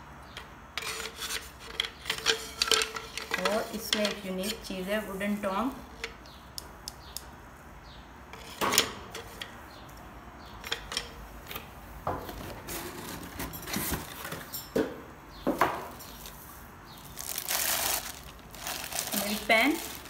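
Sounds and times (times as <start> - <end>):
plastic wrap rustling: 16.0 - 20.0.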